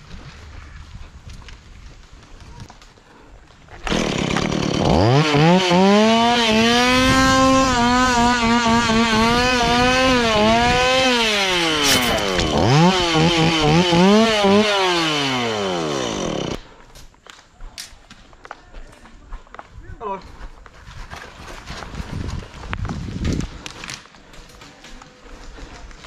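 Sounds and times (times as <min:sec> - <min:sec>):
chainsaw engine revving: 0:03.8 - 0:16.6.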